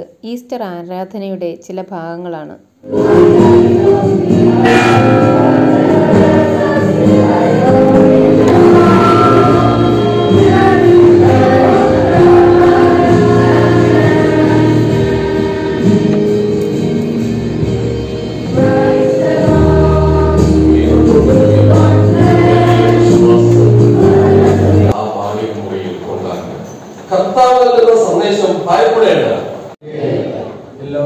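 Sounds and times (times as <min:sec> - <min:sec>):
choir and congregation singing hymn: 0:02.8 - 0:25.0.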